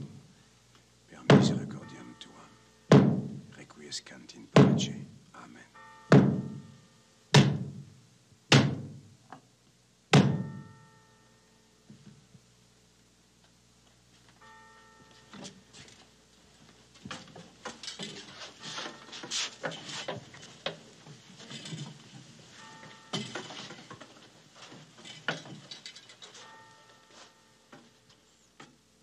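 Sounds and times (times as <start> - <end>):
objects clinking and knocking: 17.0 - 27.0.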